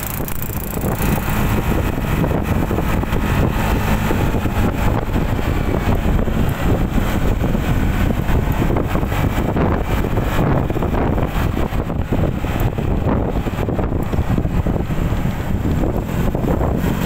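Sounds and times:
wind and road noise: 0.0s - 17.0s.

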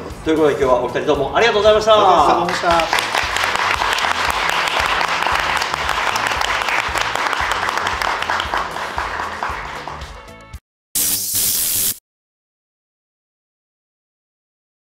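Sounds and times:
many hands clapping: 2.4s - 10.6s.

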